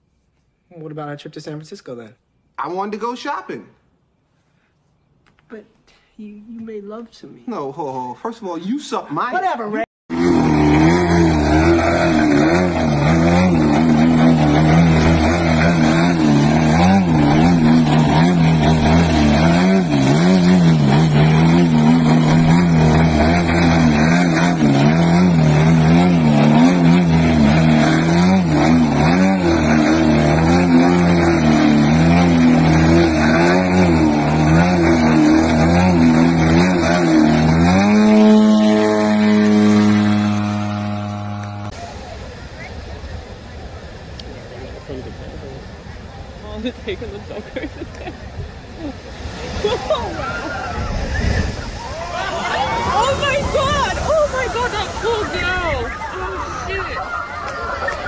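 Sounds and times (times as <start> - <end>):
model plane engine: 10.1 - 41.8.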